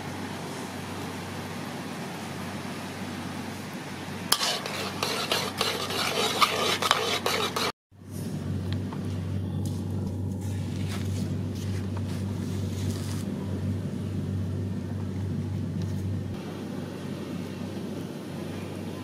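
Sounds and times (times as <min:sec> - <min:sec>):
steady low hum: 0:00.0 - 0:19.0
metal spatula scraping pan: 0:04.3 - 0:07.8.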